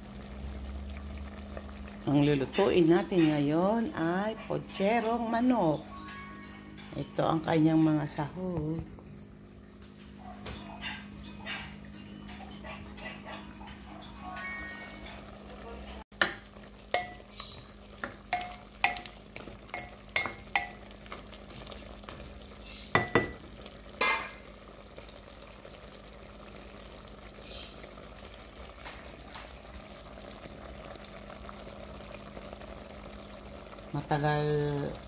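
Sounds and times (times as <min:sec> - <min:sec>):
chicken sizzling: 0:00.0 - 0:08.5, 0:09.1 - 0:35.0
spatula tapping glass pot: 0:16.2 - 0:20.9, 0:22.9 - 0:23.4.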